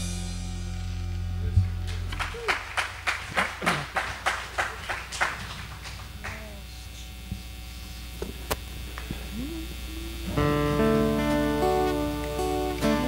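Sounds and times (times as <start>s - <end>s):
sound system hum: 0.0s - 13.0s
rhythmic handclapping: 1.6s - 7.0s, 10.2s - 13.0s.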